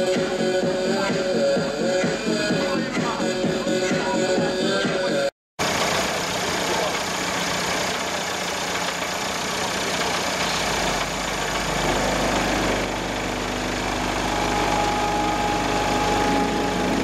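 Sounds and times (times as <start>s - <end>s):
car engine low hum: 5.6s - 17.0s
steady higher tones: 11.2s - 17.0s.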